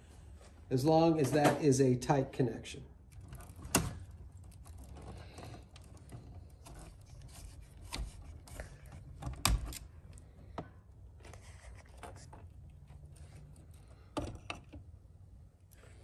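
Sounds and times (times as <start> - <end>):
faint rustling and scraping: 3.1 - 9.3, 10.0 - 14.9.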